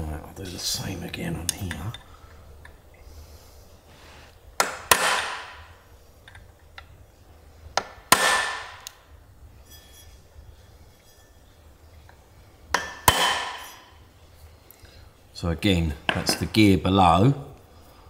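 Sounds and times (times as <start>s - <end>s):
hammer striking steel punch: 4.6s - 5.7s, 7.8s - 8.9s, 12.7s - 13.9s.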